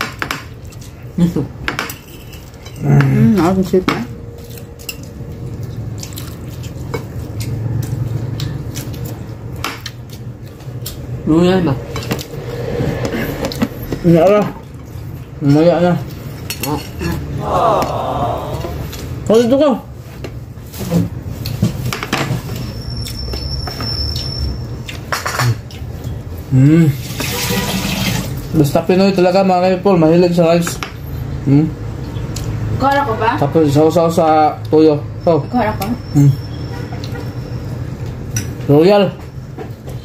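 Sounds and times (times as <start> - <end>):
wet chewing and mouth smacking: 4.4 - 11.2.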